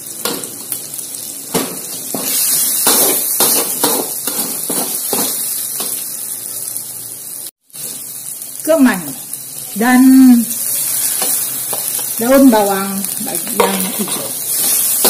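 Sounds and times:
leaves sizzling in a wok: 0.0s - 15.0s
metal spatula scraping a pan: 10.7s - 12.0s.

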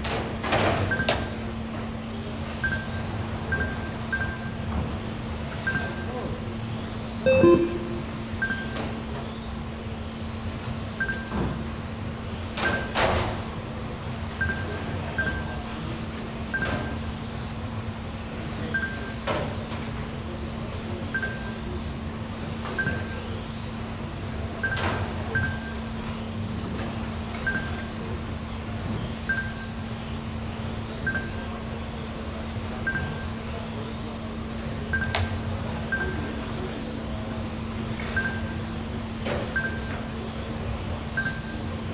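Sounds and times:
steady low hum: 0.9s - 12.4s
short electronic beeps: 2.6s - 4.6s, 5.7s - 6.1s, 7.2s - 8.8s, 25.4s - 25.8s, 31.1s - 31.4s, 38.2s - 38.6s, 39.6s - 40.0s, 41.2s - 41.7s.

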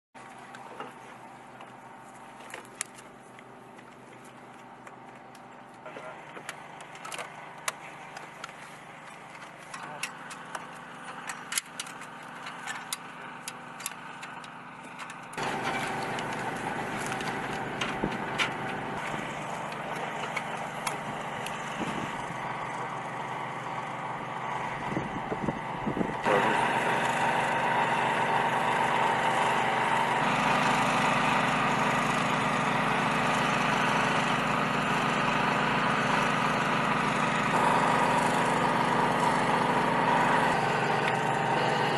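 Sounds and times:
small motor hum: 0.2s - 41.9s
metal equipment clicks and knocks: 9.2s - 16.3s.

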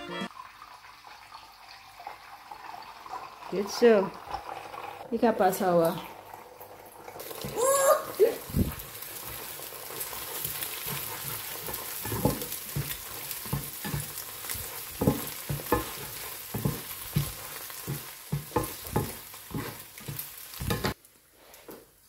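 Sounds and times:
egg sizzling in a frying pan: 6.0s - 22.0s
spatula scraping and knocking pan: 8.7s - 21.0s.

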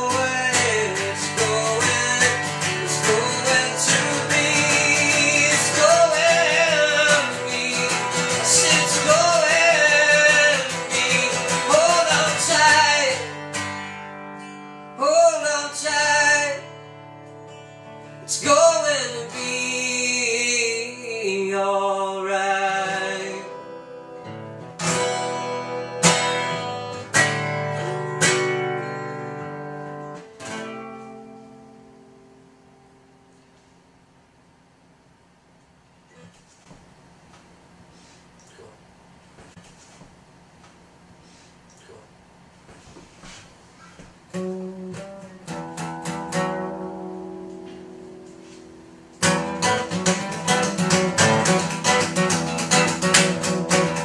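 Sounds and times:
man singing: 0.0s - 13.6s, 14.9s - 16.8s, 18.2s - 24.4s
acoustic guitar strumming: 0.0s - 33.8s, 43.2s - 54.0s.

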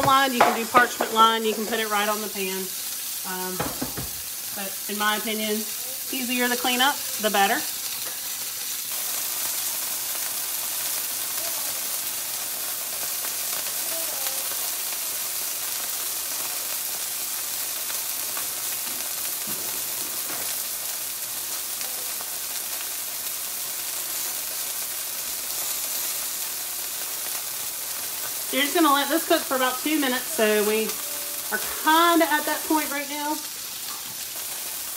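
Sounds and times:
chicken sizzling in a skillet: 0.0s - 34.9s.

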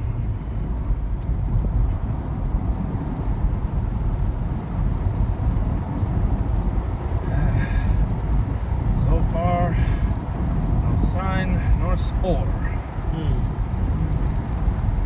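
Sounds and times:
road and engine rumble in car cabin: 0.0s - 15.0s.

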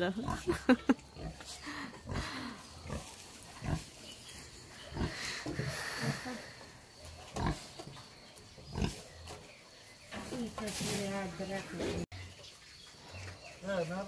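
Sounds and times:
pig grunting: 1.2s - 3.9s, 4.9s - 6.6s.

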